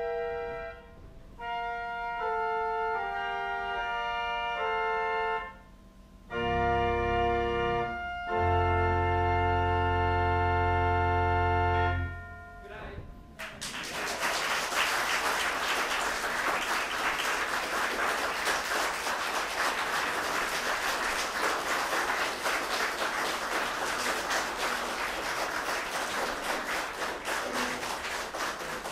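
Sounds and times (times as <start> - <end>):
audience applauding: 13.4 - 28.9.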